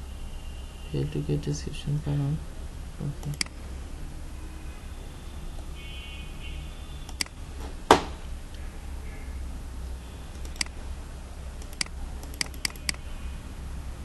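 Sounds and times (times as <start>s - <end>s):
steady low hum: 0.0s - 14.0s
computer mouse clicks: 3.2s - 3.6s, 7.1s - 7.4s, 10.3s - 10.8s, 11.6s - 13.0s
thump: 7.6s - 8.2s.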